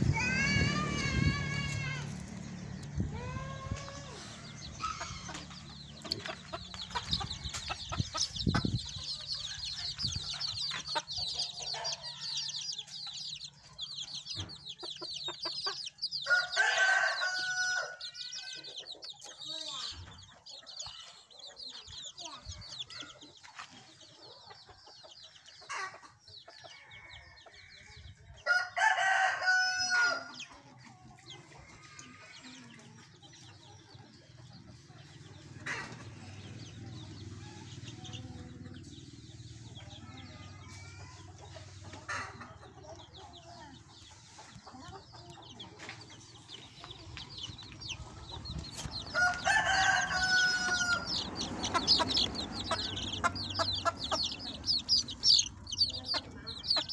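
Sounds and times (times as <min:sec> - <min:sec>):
chicken clucks: 0:03.8 - 0:17.6, 0:18.5 - 0:28.3, 0:30.0 - 0:56.9
rooster crowing: 0:16.2 - 0:18.6, 0:28.4 - 0:30.4, 0:49.0 - 0:56.0.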